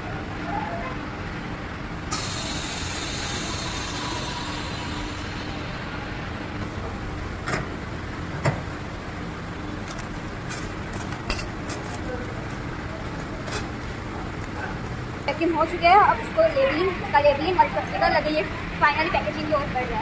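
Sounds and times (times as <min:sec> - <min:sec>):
air hissing: 0:02.1 - 0:07.3.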